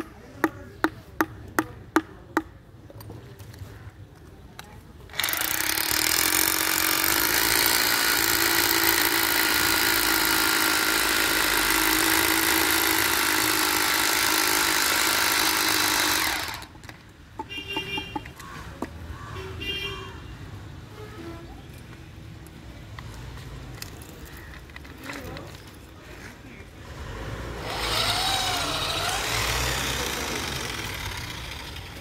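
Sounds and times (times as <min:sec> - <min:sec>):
core drill cutting concrete: 0:05.1 - 0:16.8, 0:27.6 - 0:32.0.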